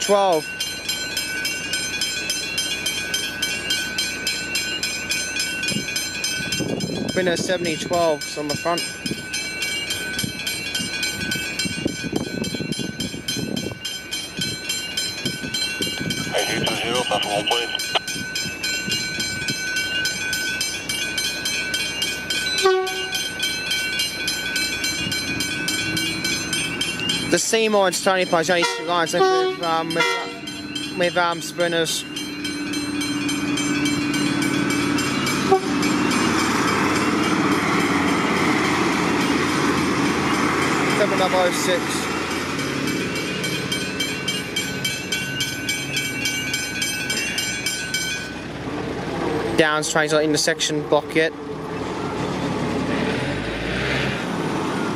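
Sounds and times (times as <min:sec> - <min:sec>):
level crossing bells ringing: 0:00.0 - 0:48.7, 0:49.5 - 0:51.5
diesel train rumble: 0:00.0 - 0:54.9
train horn toot: 0:22.6 - 0:23.2, 0:28.6 - 0:30.4, 0:35.4 - 0:35.8.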